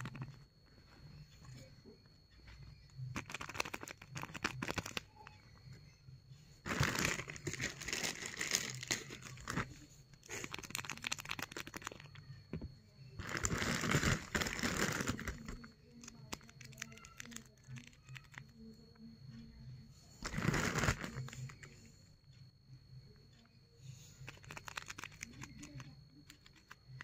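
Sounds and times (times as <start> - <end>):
paper bag crinkling: 6.7 - 11.9, 13.2 - 15.6, 20.2 - 21.4.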